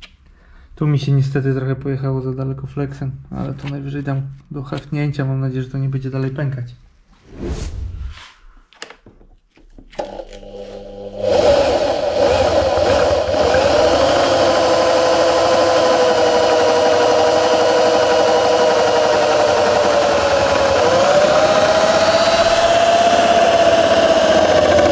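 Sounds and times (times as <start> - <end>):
power drill boring through metal: 10.0 - 24.9.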